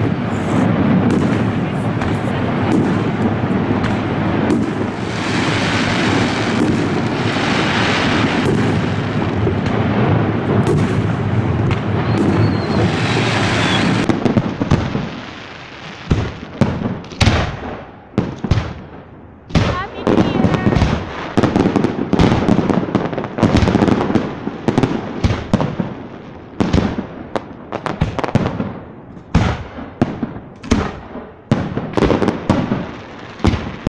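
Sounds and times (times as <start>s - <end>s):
fireworks bursting and crackling: 0.0s - 33.9s.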